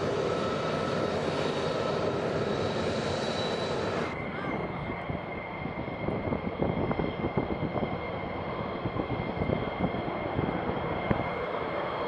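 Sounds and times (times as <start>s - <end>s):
jet engine whine and rumble: 0.0s - 12.0s.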